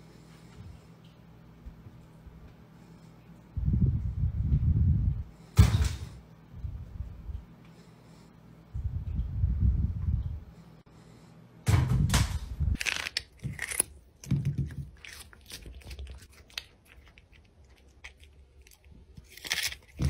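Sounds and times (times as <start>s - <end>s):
low rumbling noise: 3.5s - 5.5s, 8.7s - 10.6s
cat crunching cucumber: 12.8s - 20.0s.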